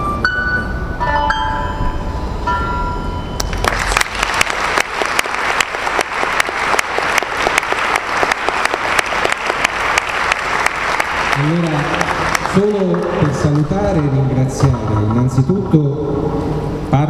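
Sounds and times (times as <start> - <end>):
audience applauding: 3.4 - 15.5.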